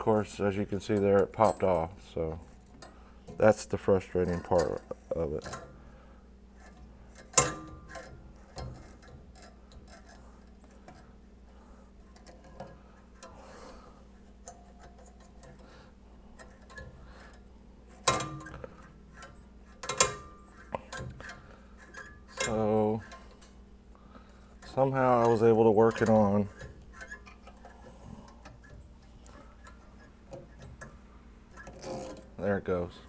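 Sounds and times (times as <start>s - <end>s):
metallic ticks and rattles: 0.0s - 5.8s, 6.6s - 23.6s, 24.2s - 33.0s
sharp metal clanks: 7.1s - 10.1s.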